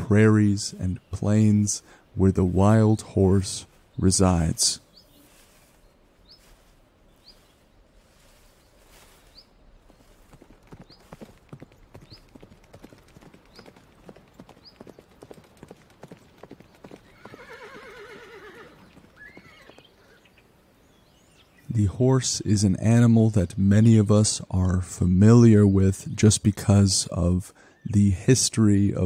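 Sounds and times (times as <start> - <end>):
small bird chirping: 4.9 - 15.3
horse hooves clip-clopping: 9.8 - 20.0
horse whinnying: 17.1 - 19.9.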